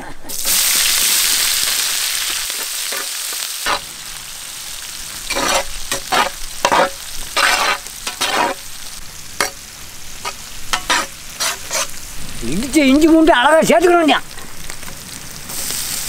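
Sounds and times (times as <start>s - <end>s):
onions sizzling in hot oil: 0.3s - 16.0s
metal ladle scraping wok: 5.3s - 8.7s, 10.2s - 12.0s.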